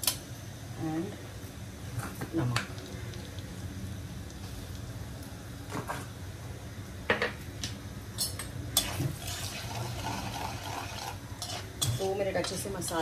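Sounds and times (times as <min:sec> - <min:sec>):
faint steady hum: 0:00.0 - 0:13.0
metal spoon scraping a pan: 0:10.3 - 0:13.0.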